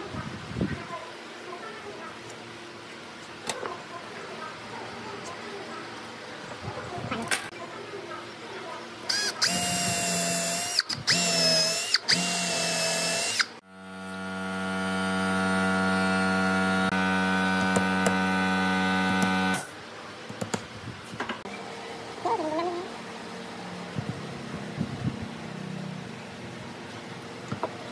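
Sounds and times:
power drill boring wood: 0:09.1 - 0:19.7
steady hum: 0:12.2 - 0:19.8.

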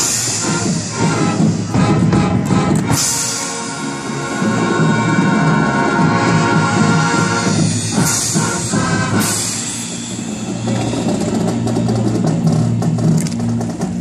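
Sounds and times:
marching band brass chords: 0:00.0 - 0:14.0.

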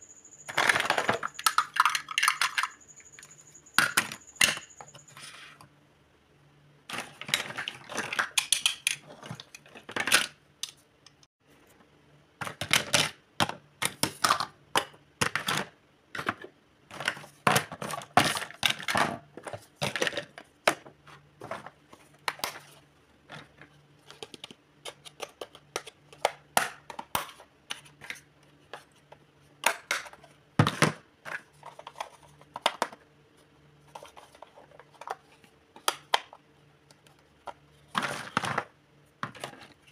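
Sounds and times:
plastic toy pieces clattering: 0:00.5 - 0:02.8.

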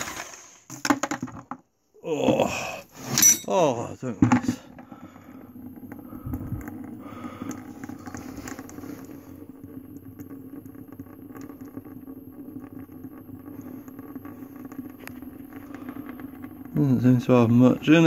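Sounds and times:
steady low hum: 0:02.2 - 0:18.0
oil dripping into container: 0:04.6 - 0:18.0.

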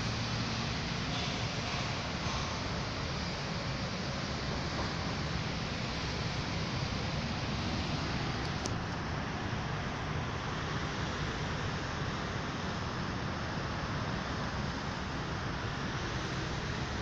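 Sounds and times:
train rumbling on board: 0:00.0 - 0:10.4.

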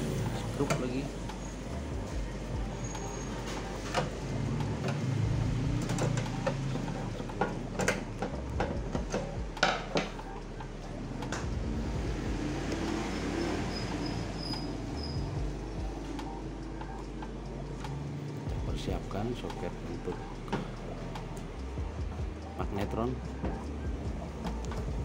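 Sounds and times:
metallic clicks and knocks: 0:03.6 - 0:11.6.

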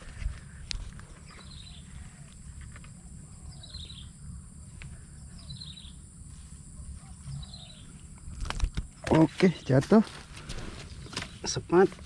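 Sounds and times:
bird chirping: 0:01.0 - 0:08.4.

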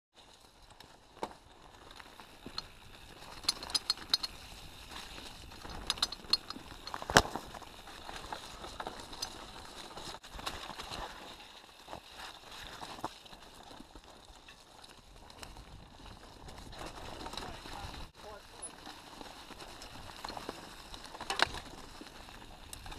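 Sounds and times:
bike tyres rolling on leaves: 0:00.1 - 0:22.9
bike rattling clicks: 0:02.1 - 0:10.8, 0:18.6 - 0:22.9.

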